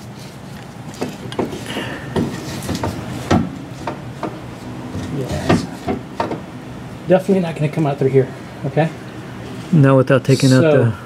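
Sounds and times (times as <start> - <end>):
rubbing: 0.0 - 6.4
metal knocks and clunks: 1.0 - 6.5.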